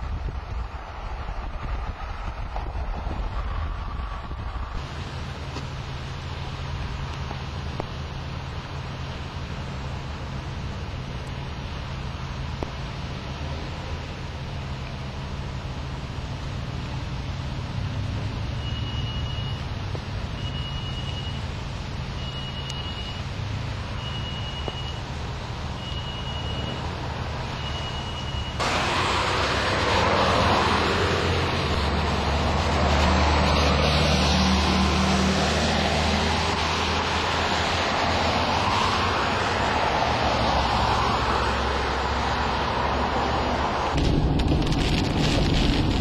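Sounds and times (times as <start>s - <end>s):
engine and road rumble: 0.0s - 46.0s
road and wind noise rushing: 0.0s - 46.0s
high electronic beep: 18.6s - 19.7s, 22.2s - 23.3s, 24.0s - 25.0s, 25.8s - 26.8s, 27.6s - 28.6s.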